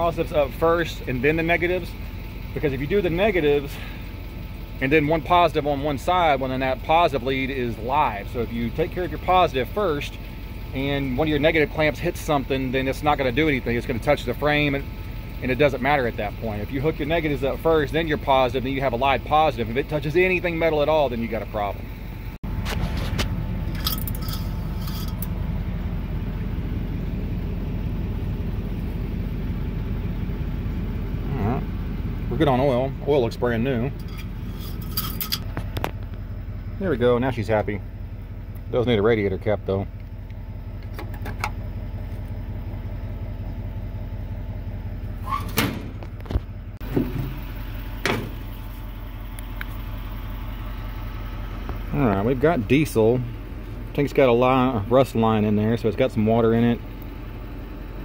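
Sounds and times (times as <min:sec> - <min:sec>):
truck engine idling: 0:00.0 - 0:58.0
light metallic clinks: 0:23.6 - 0:25.4, 0:33.9 - 0:35.5
metal parts clicking and knocking: 0:23.7 - 0:25.3, 0:34.0 - 0:35.5.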